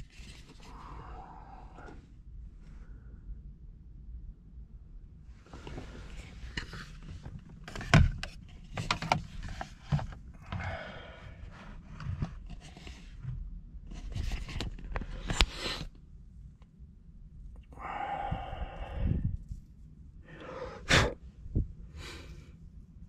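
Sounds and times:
rustling and shuffling handling noise: 0.0 - 0.9, 5.3 - 16.2, 19.3 - 20.2.

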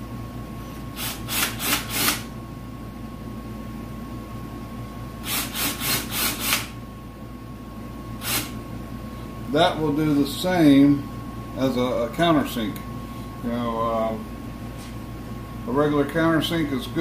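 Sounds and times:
cordless drill pulsing into wood: 1.0 - 2.3, 5.2 - 6.7, 8.2 - 8.5.

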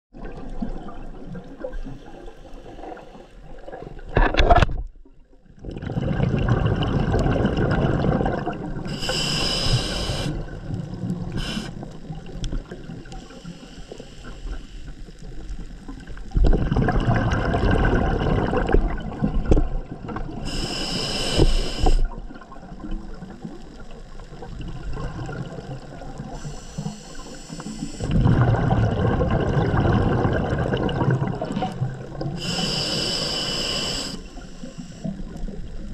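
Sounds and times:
bubbling exhale: 5.6 - 12.2, 16.4 - 19.4, 20.2 - 22.2, 24.5 - 35.6
hissing regulator inhale: 8.8 - 12.0, 13.1 - 15.1, 20.4 - 22.2, 26.2 - 28.2, 32.2 - 35.6.

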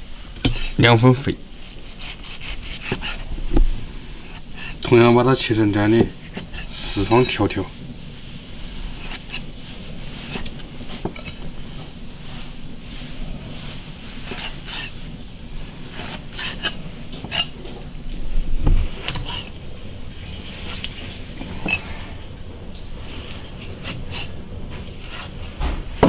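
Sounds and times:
heavy low thump: 3.2 - 4.1, 25.6 - 26.0.

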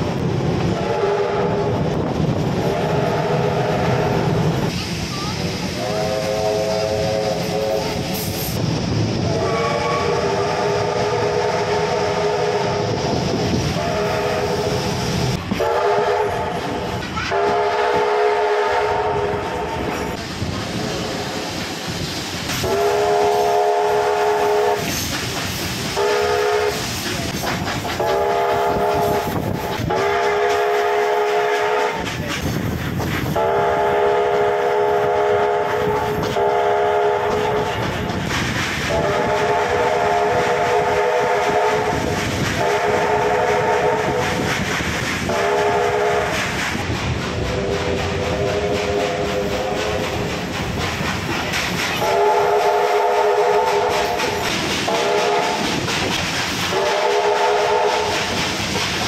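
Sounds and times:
train wheels clattering on rails: 0.0 - 59.0
steam locomotive whistle blasts: 0.7 - 1.9, 2.6 - 4.4, 5.8 - 8.6, 9.2 - 19.9, 22.6 - 25.1, 25.9 - 27.0, 28.0 - 32.1, 33.4 - 37.8, 38.9 - 44.4, 45.3 - 46.5, 47.4 - 50.0, 52.0 - 55.7, 56.7 - 58.4.

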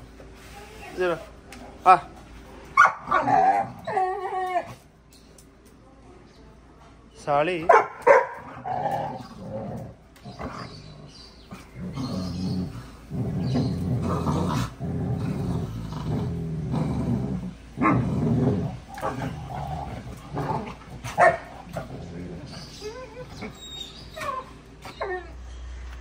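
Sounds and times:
dogs growling: 3.0 - 5.0, 8.3 - 26.0.

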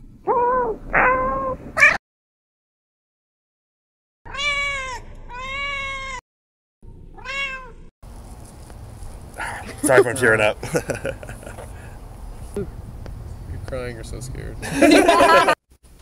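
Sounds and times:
cats meowing: 0.3 - 2.0, 4.3 - 6.2, 7.2 - 7.8.

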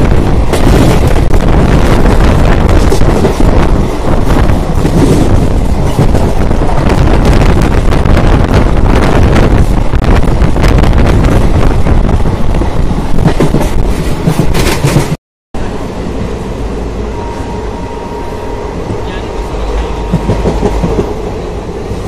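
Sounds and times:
wind buffeting microphone: 0.0 - 15.2
train running rumble: 0.0 - 22.0.

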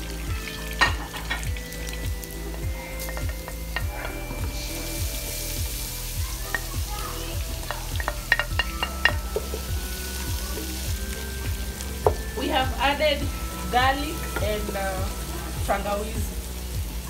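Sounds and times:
garlic sizzling in hot oil: 0.0 - 17.0
utensil tapping a pot: 3.0 - 4.6, 7.6 - 9.7
wooden spoon stirring: 7.6 - 9.7.

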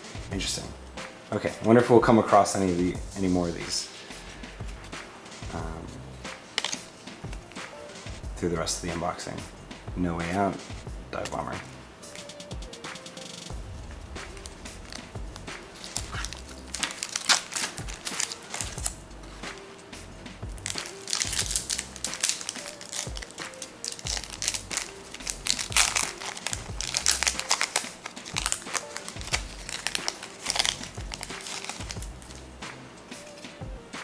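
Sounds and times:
soft background music: 0.0 - 34.0
foil wrapper crinkling: 6.5 - 7.6, 14.2 - 19.7, 20.6 - 32.5.

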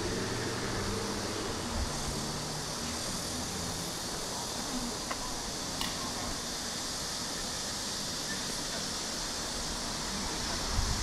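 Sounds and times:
engine hum: 0.0 - 4.4
distant traffic rumble: 0.0 - 11.0
steady high hiss: 0.0 - 11.0.

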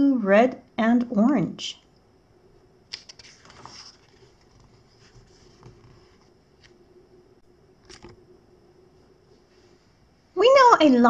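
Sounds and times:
paper page turning: 2.9 - 6.8
soft brushing on paper: 3.1 - 6.8, 9.0 - 10.1.

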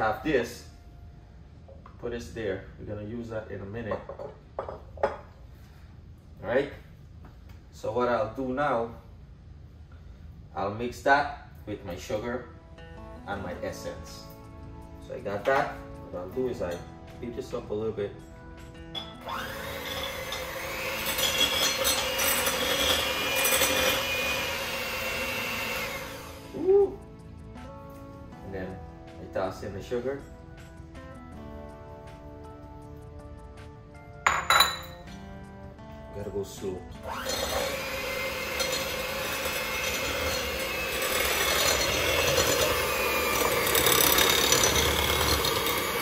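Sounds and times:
electric hand mixer whirring: 19.2 - 26.7, 37.0 - 46.0.

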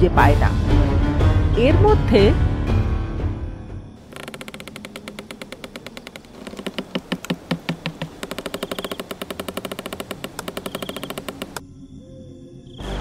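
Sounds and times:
rapid cartoon rattling: 4.0 - 11.6.

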